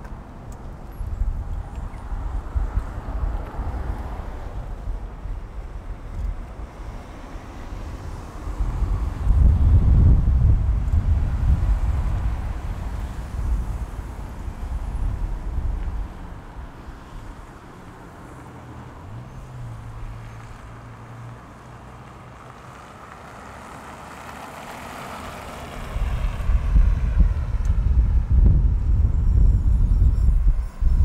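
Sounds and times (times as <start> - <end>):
wind buffeting microphone: 0.0 - 17.5, 25.6 - 31.0
low vehicle engine hum: 0.0 - 31.0
vehicle passing by: 17.2 - 29.5.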